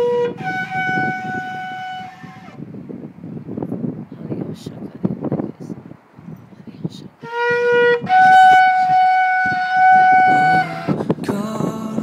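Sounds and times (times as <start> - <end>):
ram's horn blown: 0.0 - 2.7, 7.2 - 11.1.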